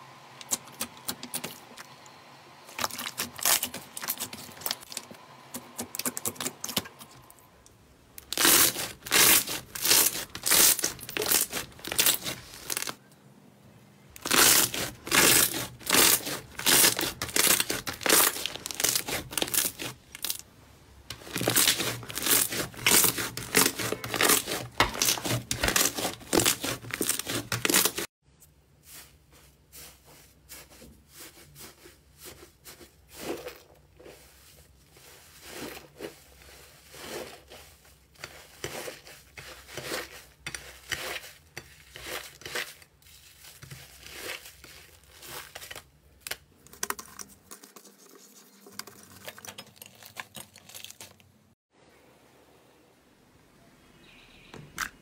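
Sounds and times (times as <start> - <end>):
hands kneading sticky slime: 8.2 - 13.0, 14.2 - 20.4, 21.1 - 28.1, 28.9 - 51.2.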